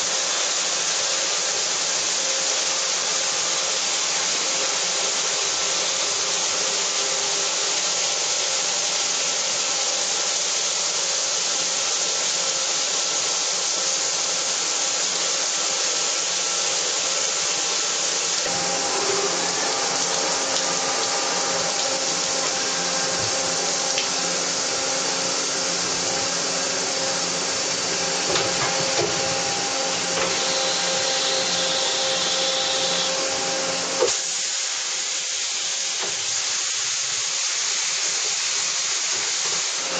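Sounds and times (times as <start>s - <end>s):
coolant spray hiss: 0.0s - 39.9s
machine whine: 18.5s - 34.3s
knock: 28.3s - 29.4s.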